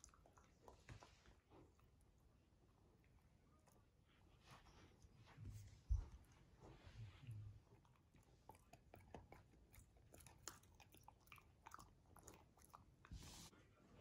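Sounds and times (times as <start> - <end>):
puppy gnawing on chew: 7.6 - 13.0.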